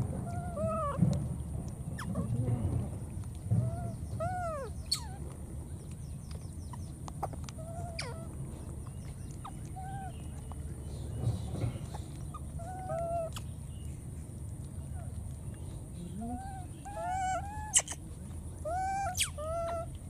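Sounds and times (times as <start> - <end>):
steady low rumble: 0.0 - 20.0.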